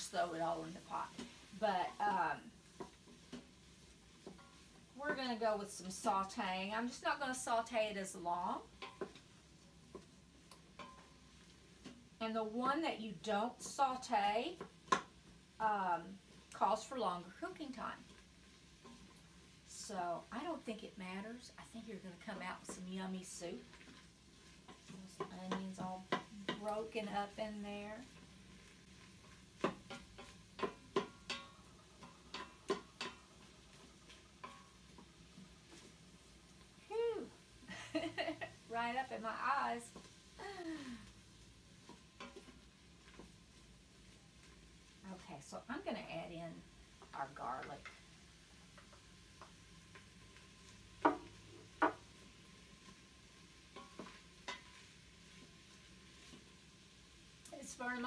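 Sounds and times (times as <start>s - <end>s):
wooden spoon stirring in metal pot: 0.0s - 58.0s
wooden spoon tapping metal pot: 8.7s - 9.3s, 9.9s - 11.2s, 14.5s - 15.2s, 23.6s - 28.1s, 29.3s - 35.9s, 41.8s - 43.4s, 51.0s - 52.2s, 53.7s - 54.8s.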